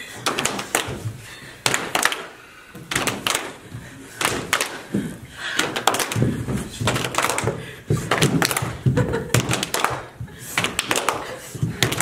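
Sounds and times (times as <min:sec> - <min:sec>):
group clapping in time: 0:01.6 - 0:03.6, 0:04.2 - 0:05.0, 0:05.6 - 0:12.0.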